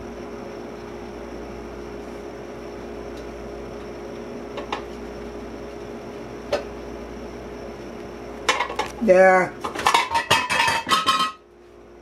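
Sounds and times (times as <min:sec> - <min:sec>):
refrigerator humming: 0:00.0 - 0:12.0.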